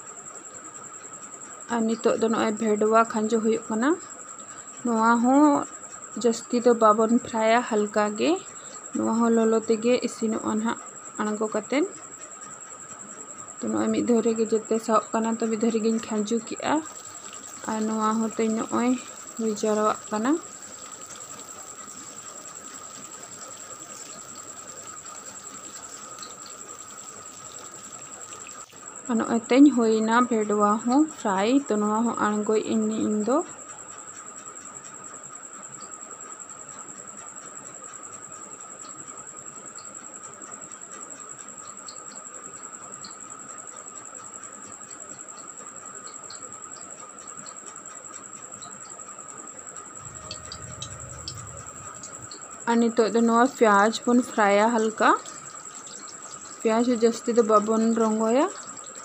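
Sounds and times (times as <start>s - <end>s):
okra frying in oil: 0.0s - 59.0s
low rumble: 50.0s - 52.6s.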